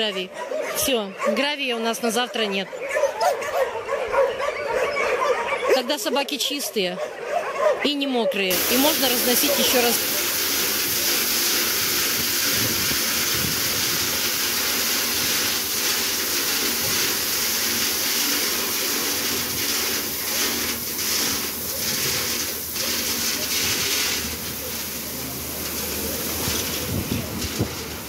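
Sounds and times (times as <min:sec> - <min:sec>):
gravel sliding out of truck: 0:08.5 - 0:28.0.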